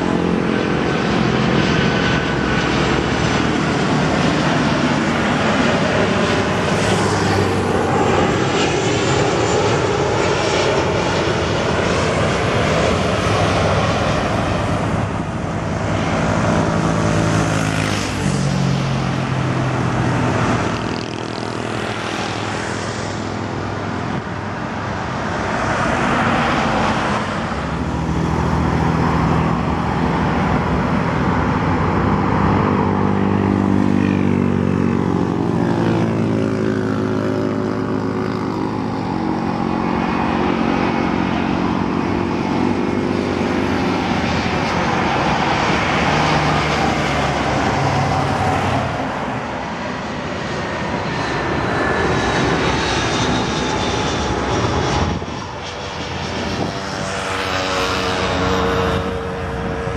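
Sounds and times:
jet engines drone: 0.0 - 59.9.

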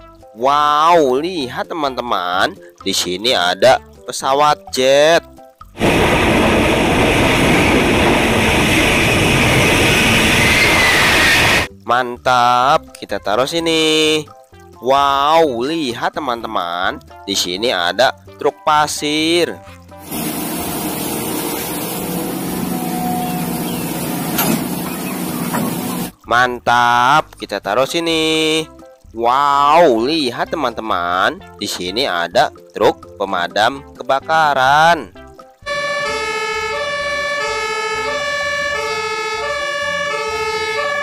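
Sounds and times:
fire engine two-tone siren: 7.4 - 11.7, 21.9 - 26.1, 35.6 - 41.0
sand pouring into truck bed: 20.0 - 26.1
excavator diesel engine running: 20.0 - 26.2.

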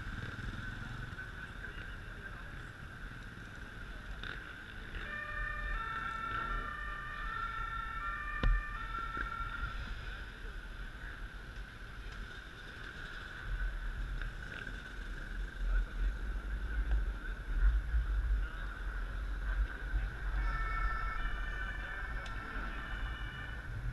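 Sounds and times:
traffic noise: 0.0 - 23.9
two-tone ambulance siren: 4.8 - 10.4, 19.6 - 23.9.

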